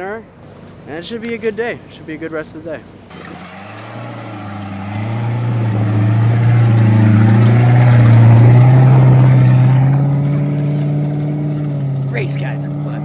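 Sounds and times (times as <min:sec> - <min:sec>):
race car engine droning past: 0:03.1 - 0:12.1.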